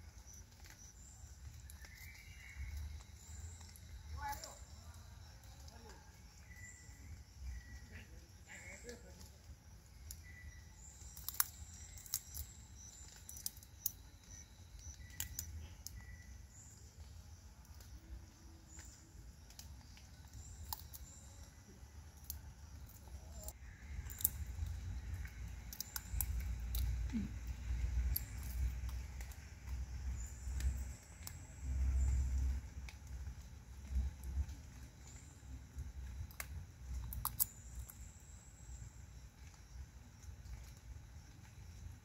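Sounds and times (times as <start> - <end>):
monkey cracking seeds: 11.0 - 16.0, 18.7 - 31.5, 36.2 - 38.0.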